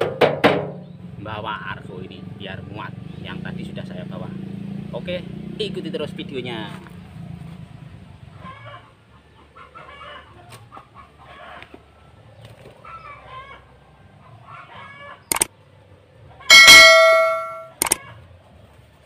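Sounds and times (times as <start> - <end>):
chickens clucking: 8.2 - 19.0
sharp click: 16.5 - 18.0.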